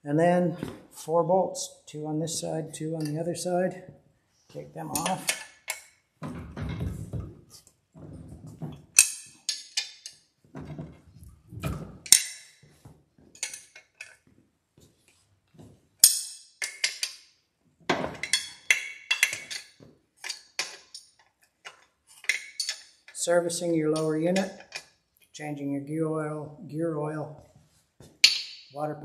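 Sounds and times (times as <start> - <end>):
tools and bolts clinking: 2.3 - 3.2, 4.8 - 7.3, 8.0 - 14.3, 16.0 - 25.0, 28.2 - 28.8.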